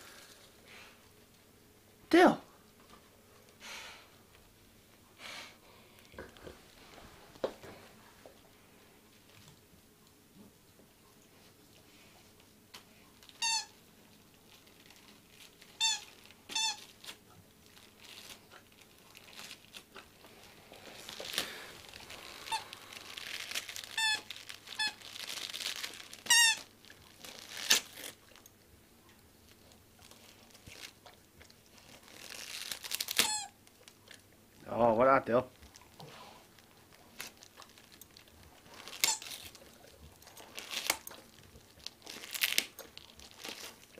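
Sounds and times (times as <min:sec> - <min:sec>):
wrapping paper crinkling and tearing: 0:14.4 - 0:28.5, 0:29.4 - 0:34.2, 0:35.5 - 0:43.9.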